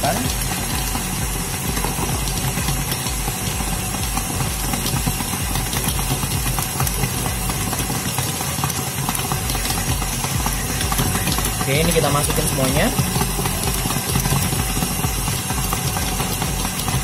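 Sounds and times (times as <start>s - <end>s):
stand mixer motor kneading dough: 0.0s - 17.0s.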